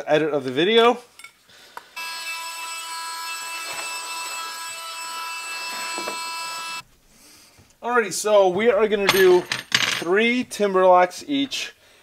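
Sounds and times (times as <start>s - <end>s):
small electric motor whining: 2.0s - 6.8s.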